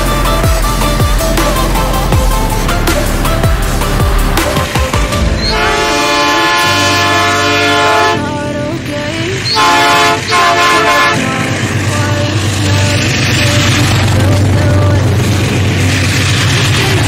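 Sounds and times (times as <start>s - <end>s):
low rumble: 0.0s - 17.0s
locomotive air horn blasts: 5.2s - 8.3s, 9.4s - 11.4s.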